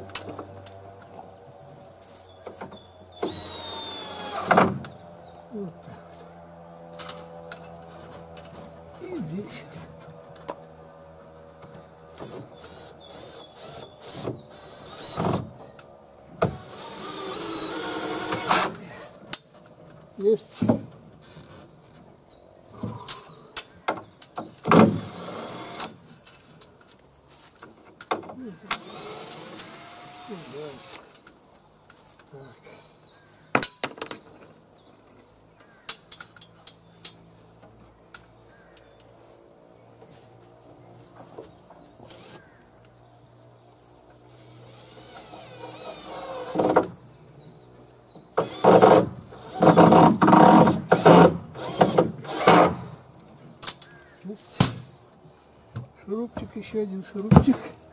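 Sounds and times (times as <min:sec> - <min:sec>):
cordless drill motor whining: 0:03.2 - 0:04.5, 0:16.6 - 0:18.8, 0:28.7 - 0:31.0, 0:42.1 - 0:42.4, 0:44.4 - 0:46.7.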